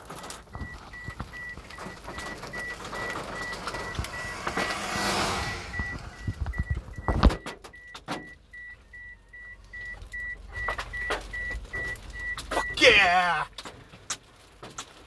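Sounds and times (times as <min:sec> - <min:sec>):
car warning chime beeping: 0:00.1 - 0:13.2
rushing noise: 0:03.6 - 0:06.8.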